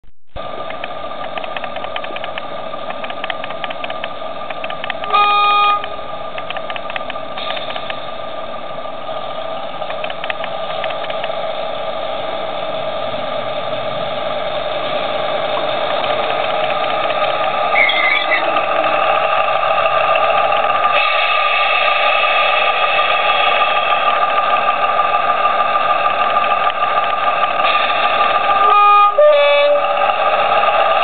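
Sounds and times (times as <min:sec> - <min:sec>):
steady mechanical noise: 0:00.3 - 0:31.0.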